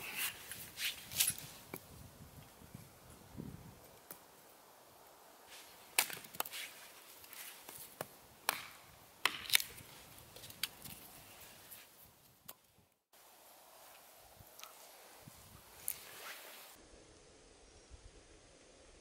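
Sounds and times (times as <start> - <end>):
hatchet chopping a log: 8.0 - 9.8.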